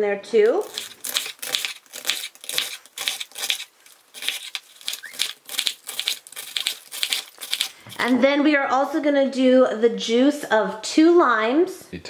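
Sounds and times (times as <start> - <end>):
knife crunching through cabbage: 0.4 - 8.2.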